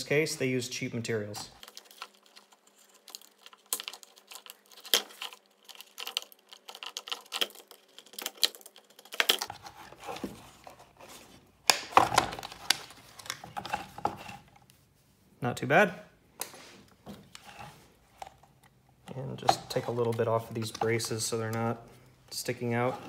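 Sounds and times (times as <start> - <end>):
knife cutting plastic: 1.6 - 14.5.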